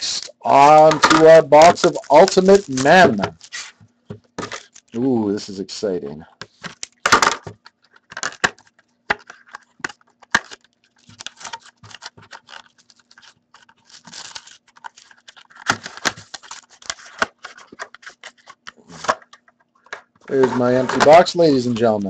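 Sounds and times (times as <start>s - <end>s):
cardboard and plastic crinkling: 0.5s - 5.0s, 6.4s - 22.0s.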